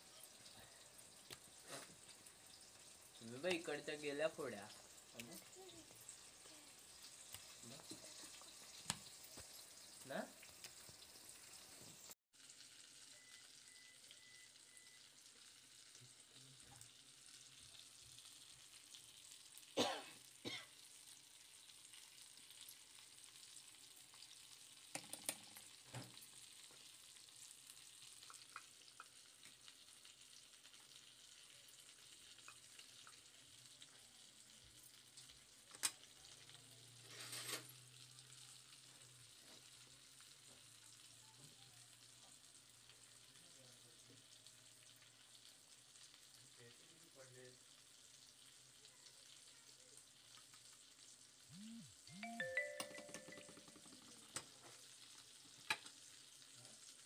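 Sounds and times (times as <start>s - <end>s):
faint steady hiss: 0.0s - 12.2s, 29.4s - 57.0s.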